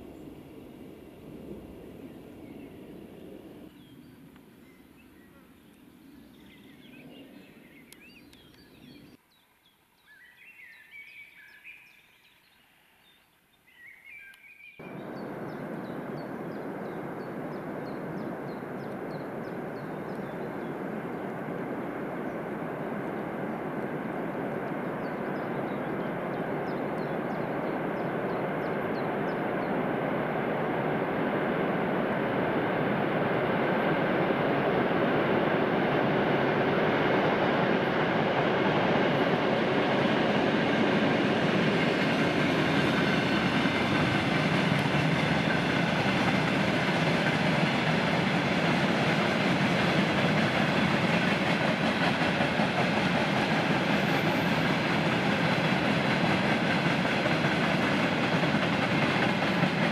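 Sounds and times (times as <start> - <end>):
birds chirping faintly: 0.0 - 45.8
diesel locomotive rumble: 14.8 - 59.9.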